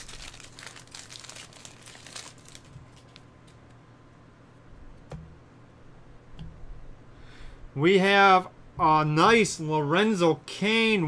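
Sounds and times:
foil wrapper crinkling: 0:00.0 - 0:03.2.

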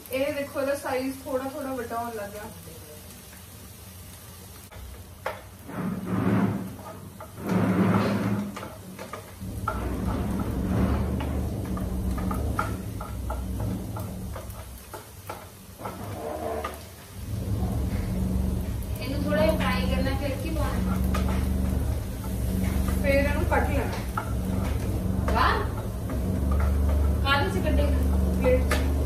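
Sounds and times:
wooden spoons scraping pans: 0:04.7 - 0:29.0
steady low rumble: 0:17.2 - 0:29.0.

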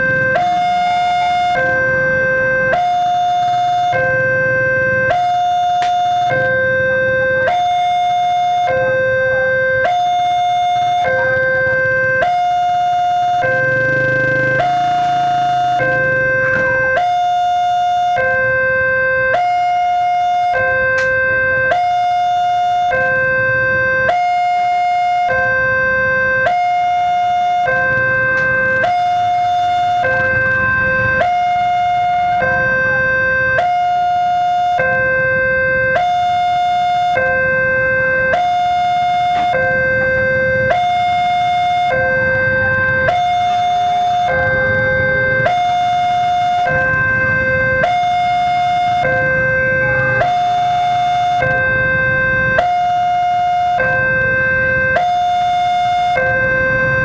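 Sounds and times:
road traffic noise: 0:00.0 - 0:57.0
two-tone crossing alarm: 0:00.0 - 0:57.0.

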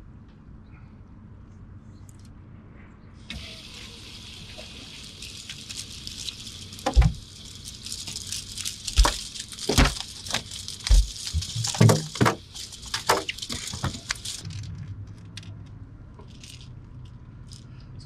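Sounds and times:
sharp knocks and rattles: 0:06.8 - 0:18.0.

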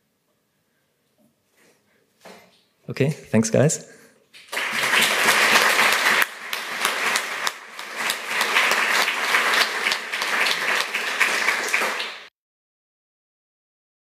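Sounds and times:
audience applauding: 0:04.4 - 0:12.3.

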